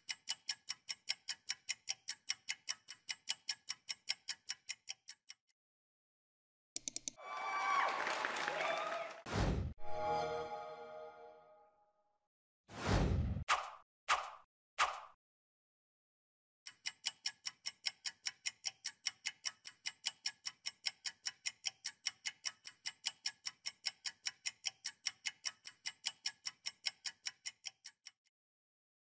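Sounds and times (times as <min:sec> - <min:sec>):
clock ticking: 0:00.0 - 0:05.5, 0:06.8 - 0:07.2, 0:16.7 - 0:28.3.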